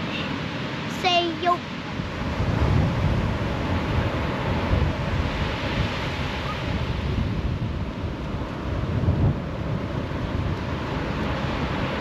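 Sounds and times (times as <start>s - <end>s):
waves breaking on beach: 0.0s - 12.0s
wind buffeting microphone: 0.0s - 12.0s.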